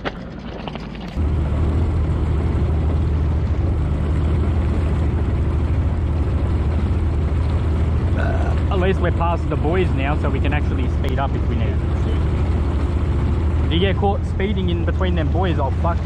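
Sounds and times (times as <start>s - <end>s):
outboard motor running: 0.0s - 16.0s.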